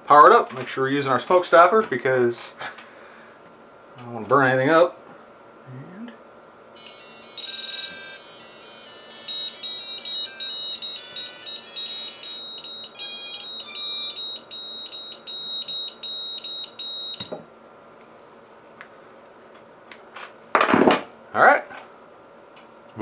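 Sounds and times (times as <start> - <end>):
high-pitched motor tone melody: 6.8 - 17.4
short beeps: 9.3 - 17.4.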